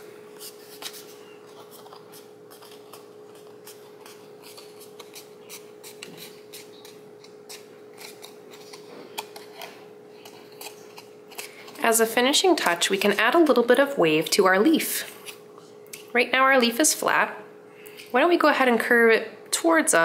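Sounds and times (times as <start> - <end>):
steady hum: 0.0 - 20.0
paper crackling and rustling: 0.3 - 13.6.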